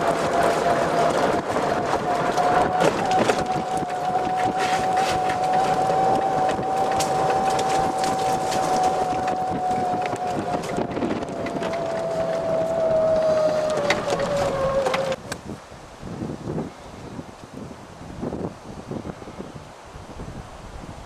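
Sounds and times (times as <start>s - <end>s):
cart rattling and clicking: 0.0s - 15.3s
golf cart motor whine: 0.0s - 15.3s.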